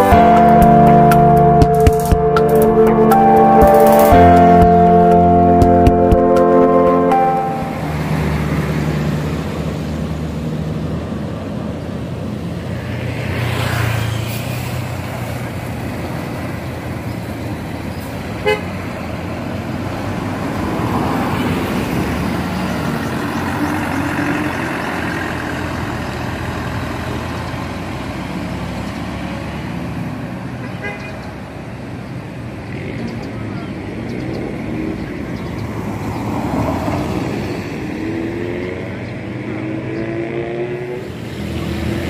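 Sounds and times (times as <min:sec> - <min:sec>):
traffic engine drone: 0:00.0 - 0:42.0
vehicle passing: 0:06.2 - 0:17.0, 0:19.2 - 0:30.0, 0:34.4 - 0:42.0.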